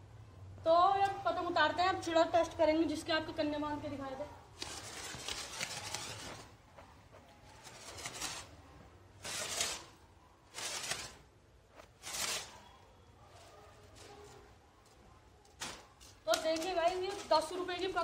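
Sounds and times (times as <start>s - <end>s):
kite string swishing: 4.6s - 8.6s.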